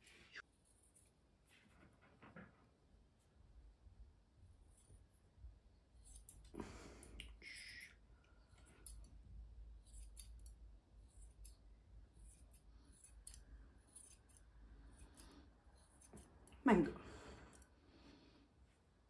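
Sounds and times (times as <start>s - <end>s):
shears snipping fur: 6.0s - 6.6s, 9.8s - 16.6s.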